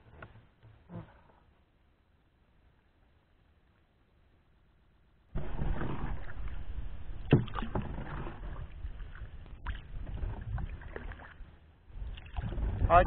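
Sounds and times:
boat paddling through water: 5.4 - 13.0.

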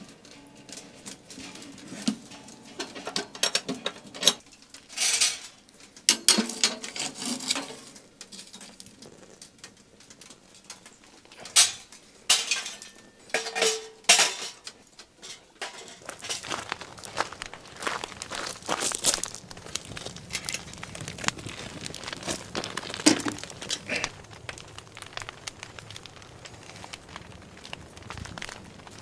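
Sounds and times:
metal tongs clinking and scraping: 0.3 - 8.7, 11.4 - 16.4.

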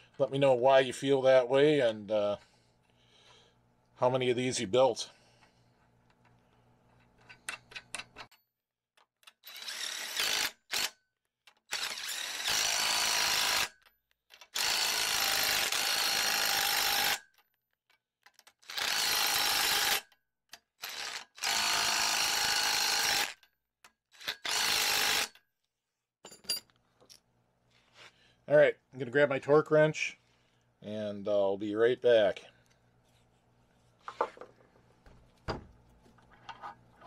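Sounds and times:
cordless driver spinning nuts: 9.2 - 10.9, 11.5 - 17.2, 18.3 - 20.0, 20.8 - 23.5, 24.2 - 25.4.

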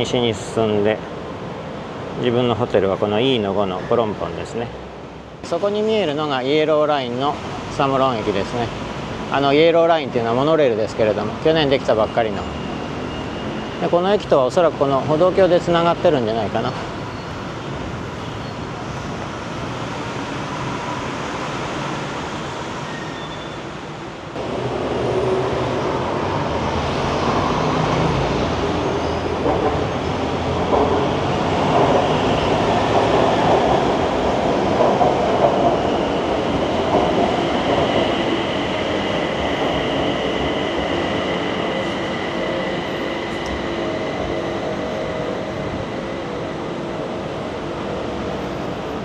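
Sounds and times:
electric train rolling on rails: 0.0 - 49.0
high whine of train drive: 6.5 - 49.0.

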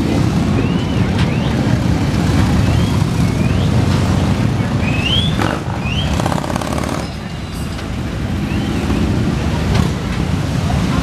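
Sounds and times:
motorcycle engines rumbling: 0.0 - 11.0
high rising and falling whistles: 4.6 - 6.2.

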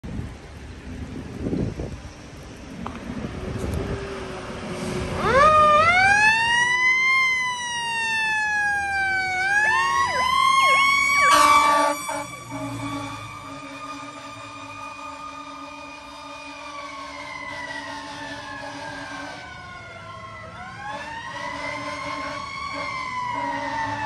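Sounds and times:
tyres hissing on wet road: 0.1 - 5.3
fire engine siren wailing: 3.3 - 24.0
siren chirps: 5.1 - 24.0
horn blast: 10.7 - 14.5.

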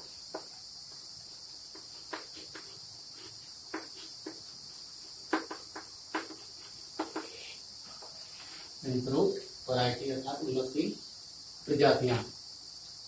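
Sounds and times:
crickets chirring: 0.0 - 13.0
chalk tapping on blackboard: 0.1 - 8.7.

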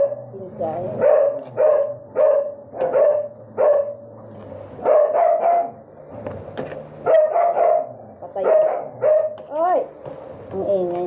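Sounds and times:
dog barking: 0.0 - 0.3, 1.0 - 4.0, 4.8 - 5.8, 7.0 - 9.4.

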